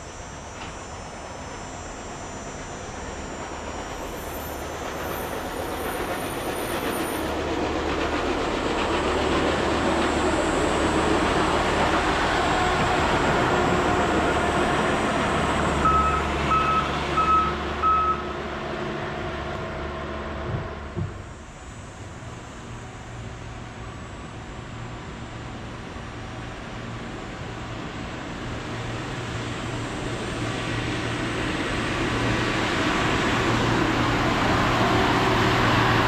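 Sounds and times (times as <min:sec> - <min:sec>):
rail crane engine: 0:00.0 - 0:36.0
short warning beeps: 0:15.8 - 0:18.3.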